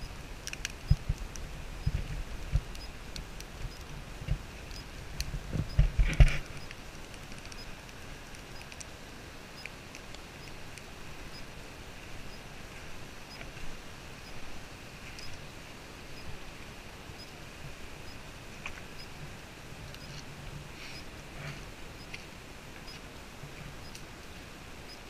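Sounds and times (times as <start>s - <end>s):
small clicks: 0.0s - 8.9s.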